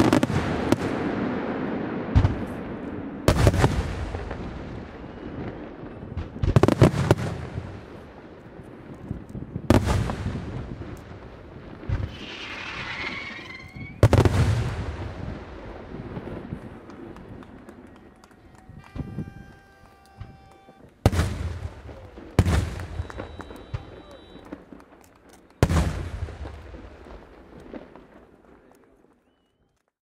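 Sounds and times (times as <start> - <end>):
firework booms: 0.0 - 28.7
firework hiss: 11.7 - 16.6.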